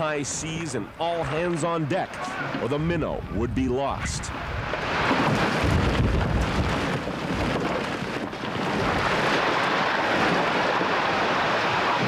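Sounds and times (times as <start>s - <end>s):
rough sea rushing: 0.0s - 12.0s
storm wind on microphone: 2.4s - 12.0s.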